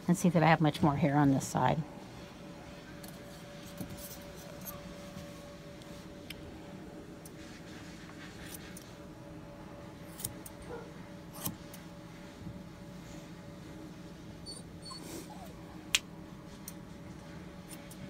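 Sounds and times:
faint steady hum: 0:00.0 - 0:18.0
scissors snipping: 0:10.1 - 0:10.6.

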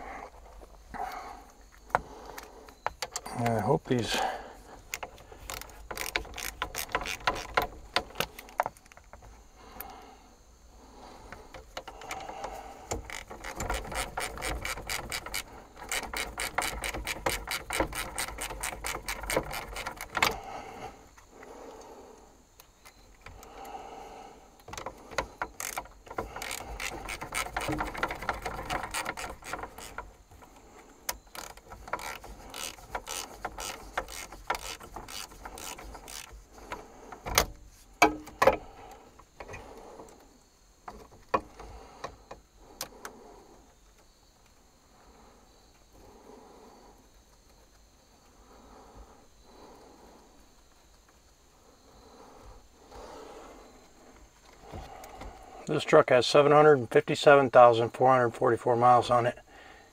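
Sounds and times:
ratchet wrench clicking: 0:04.9 - 0:08.9, 0:12.9 - 0:20.4, 0:25.5 - 0:30.0, 0:31.1 - 0:36.4
sharp knocks: 0:37.2 - 0:38.6.

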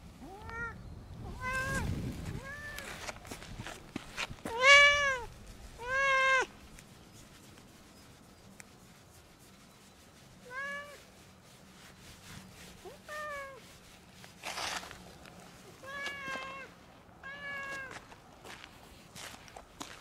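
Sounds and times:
cat meowing: 0:00.2 - 0:01.8, 0:02.4 - 0:02.9, 0:04.5 - 0:06.5, 0:15.8 - 0:17.9.

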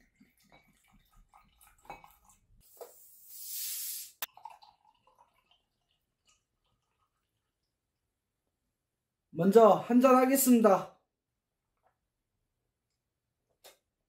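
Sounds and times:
liquid trickling into a glass: 0:00.0 - 0:03.0, 0:04.2 - 0:07.8
beer pouring into a glass: 0:00.2 - 0:07.8
beer bottle opening hiss and click: 0:03.3 - 0:04.3.

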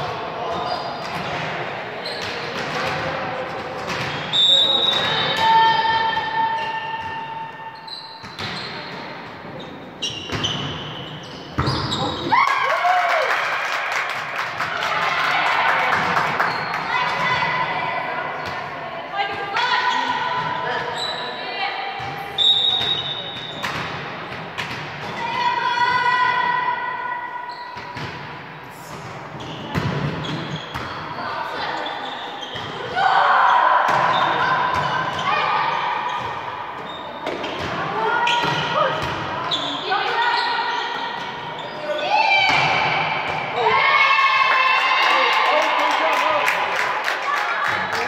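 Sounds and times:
shoes squeaking on court floor: 0:00.5 - 0:01.4, 0:02.0 - 0:02.8, 0:03.9 - 0:12.3, 0:16.4 - 0:17.3, 0:19.8 - 0:21.4, 0:22.0 - 0:23.8, 0:27.5 - 0:28.1, 0:28.9 - 0:33.0, 0:33.9 - 0:42.2
volleyball hits echoing: 0:42.3 - 0:43.8.

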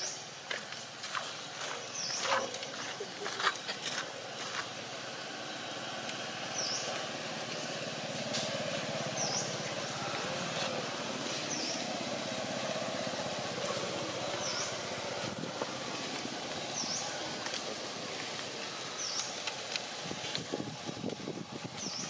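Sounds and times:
bird chirping: 0:01.7 - 0:03.3, 0:06.5 - 0:07.8, 0:09.1 - 0:09.8, 0:14.3 - 0:14.9, 0:16.6 - 0:17.2
low engine drone: 0:02.4 - 0:21.9.

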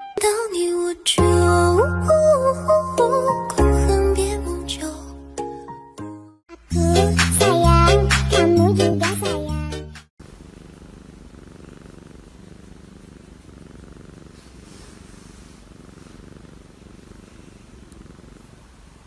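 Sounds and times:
cat purring: 0:10.2 - 0:19.0.

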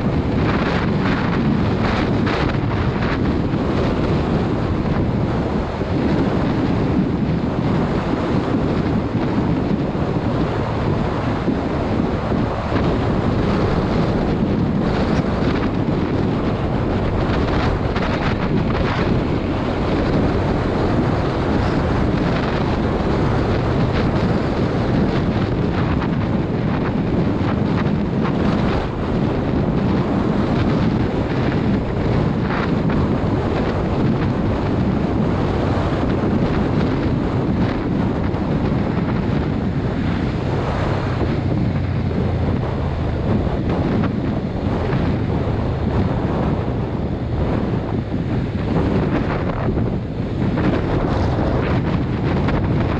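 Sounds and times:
road noise: 0:00.0 - 0:52.9
wind buffeting microphone: 0:00.0 - 0:52.9
motorcycle engine: 0:30.0 - 0:51.8.

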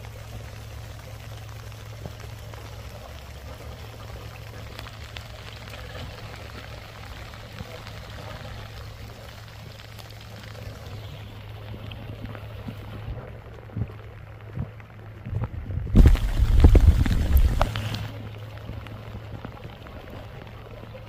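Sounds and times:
low engine hum: 0:00.0 - 0:21.0
watery spattering noise: 0:15.8 - 0:18.4.

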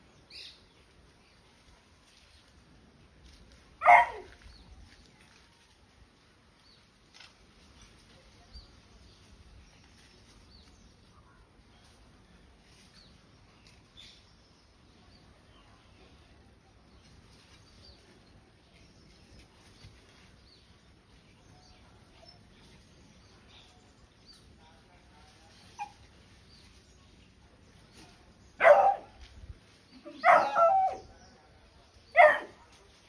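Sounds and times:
dog barking: 0:03.8 - 0:04.3, 0:28.6 - 0:29.2, 0:30.2 - 0:31.0, 0:32.2 - 0:32.7.

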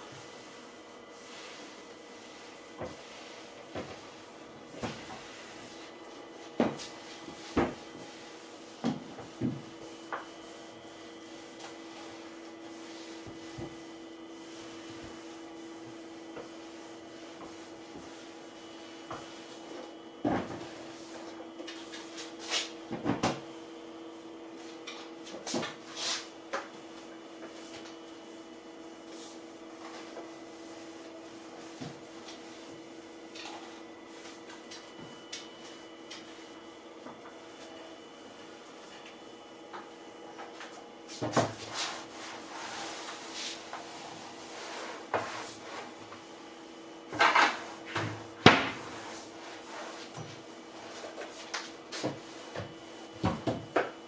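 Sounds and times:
mop knocking on wooden cabinets: 0:06.6 - 0:07.8, 0:08.8 - 0:10.3.

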